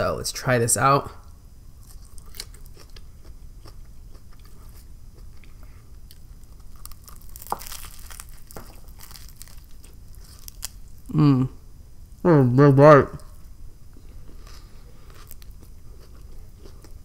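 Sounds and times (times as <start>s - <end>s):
biting into sandwich: 1.8s - 10.8s
crunchy chewing: 1.8s - 11.1s, 13.2s - 17.0s.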